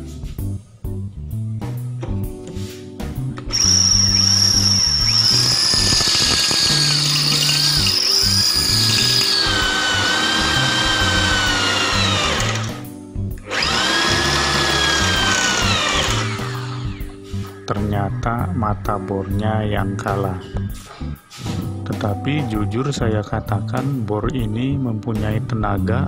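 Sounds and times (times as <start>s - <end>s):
lounge background music: 0.0s - 26.0s
impact drill grinding into steel: 3.5s - 12.8s, 13.5s - 17.2s.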